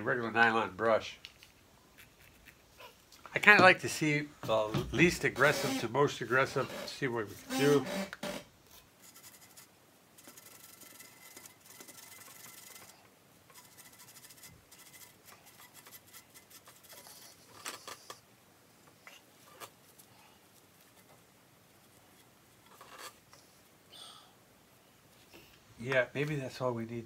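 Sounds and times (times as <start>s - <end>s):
brush scrubbing steel barrels: 3.4s - 18.1s.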